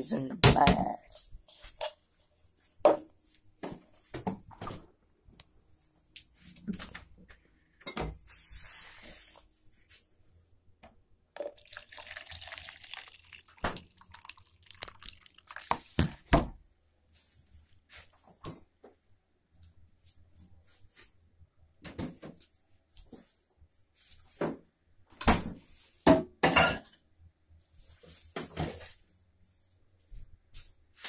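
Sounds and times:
water running from a tap: 11.6 - 16.2.

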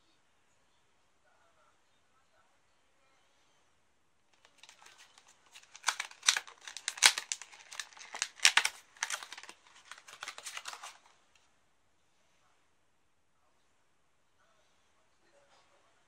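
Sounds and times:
plastic packaging crackling: 4.4 - 11.1.

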